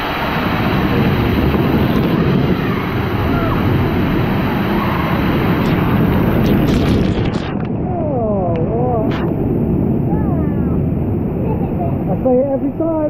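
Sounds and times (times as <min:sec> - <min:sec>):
waterfall splashing: 0:00.0 - 0:07.6.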